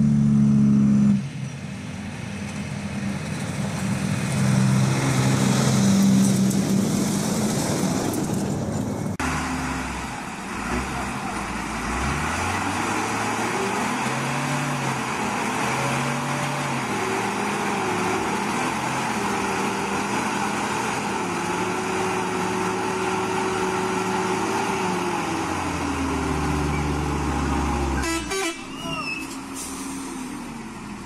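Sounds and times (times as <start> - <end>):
diesel truck engine revving: 0.0 - 31.0.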